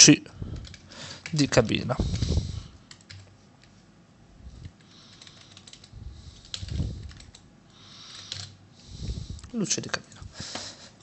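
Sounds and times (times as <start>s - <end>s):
keyboard typing: 0.6s - 3.3s, 4.7s - 7.4s, 8.1s - 8.6s.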